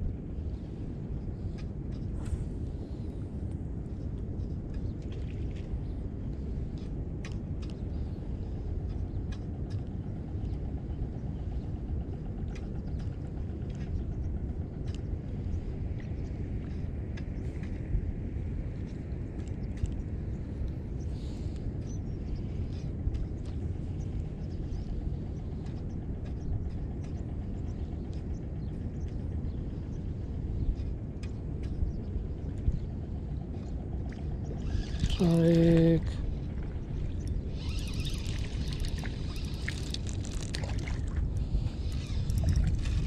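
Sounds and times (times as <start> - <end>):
wind rumble on microphone: 0.0 - 43.0
faint irregular ticks: 37.2 - 43.0
fishing reel clicks: 37.5 - 40.6, 41.6 - 43.0.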